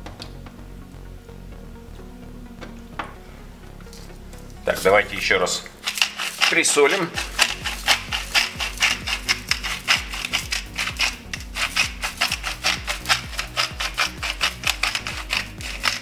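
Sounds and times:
background music: 0:00.0 - 0:16.0
spice grinder crunching: 0:05.8 - 0:16.0.

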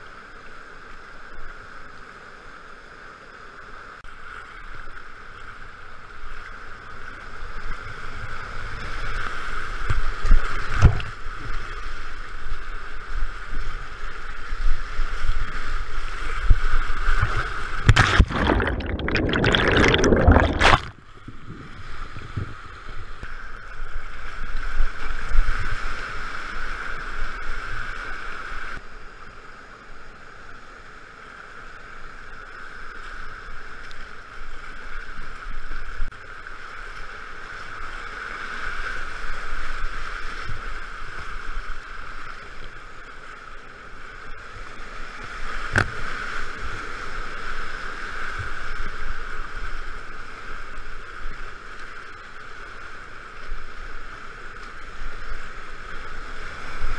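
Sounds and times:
loud water splash: 0:17.8 - 0:21.0.

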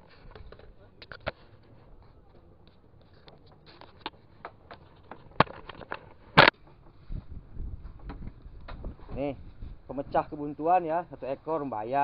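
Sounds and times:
handling clicks and knocks: 0:02.6 - 0:07.0.

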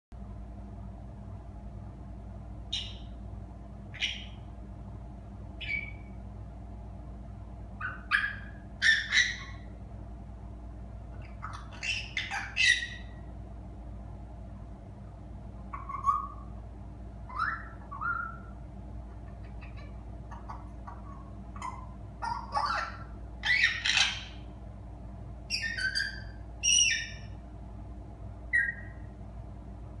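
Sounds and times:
parrot chirping: 0:02.7 - 0:03.2, 0:03.9 - 0:04.5, 0:05.6 - 0:06.2, 0:07.8 - 0:09.7, 0:11.1 - 0:13.3, 0:15.7 - 0:16.6, 0:17.2 - 0:24.5, 0:25.5 - 0:27.4, 0:28.5 - 0:29.1.

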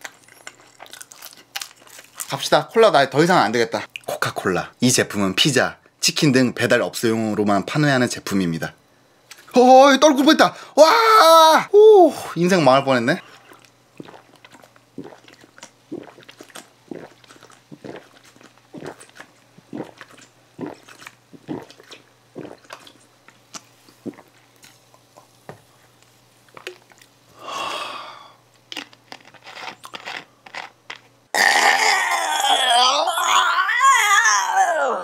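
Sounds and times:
person gulping from a bottle: 0:13.3 - 0:23.1, 0:24.0 - 0:25.3, 0:31.4 - 0:32.5.

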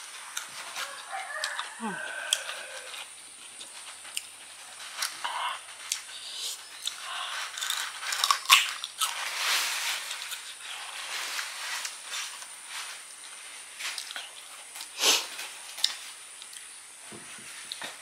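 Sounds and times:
crunchy fruit biting and chewing: 0:00.2 - 0:09.3
hiss: 0:14.8 - 0:15.8.

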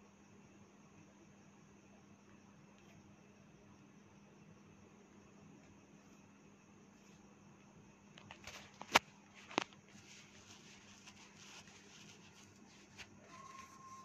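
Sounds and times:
faint steady hum: 0:00.0 - 0:14.0
thin high tone: 0:13.2 - 0:14.0.

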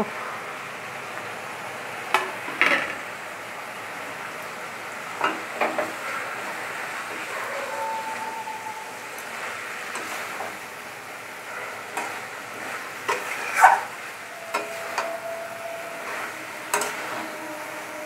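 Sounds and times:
fish sizzling in a pan: 0:02.1 - 0:15.3.

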